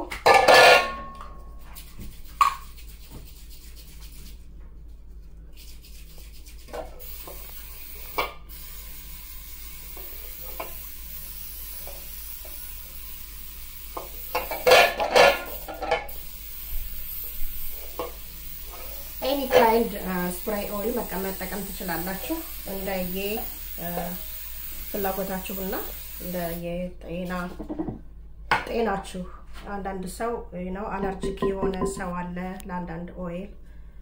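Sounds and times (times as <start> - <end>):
aerosol spray hiss: 7.0 - 14.7, 15.5 - 26.6
metal pan knocking and clattering: 31.2 - 32.1.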